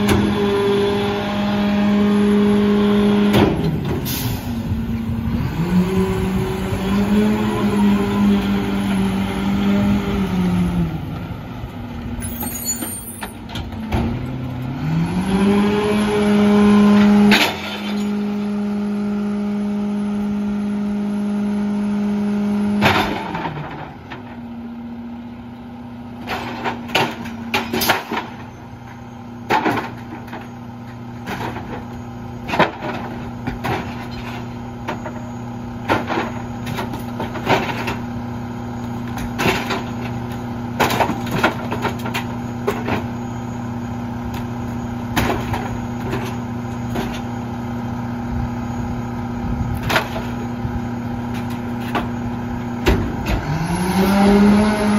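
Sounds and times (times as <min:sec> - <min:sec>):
garbage truck diesel engine: 0:00.0 - 0:54.9.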